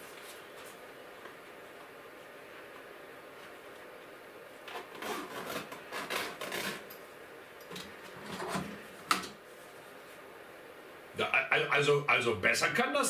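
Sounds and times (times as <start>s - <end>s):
rustling and scraping: 0.0s - 1.4s.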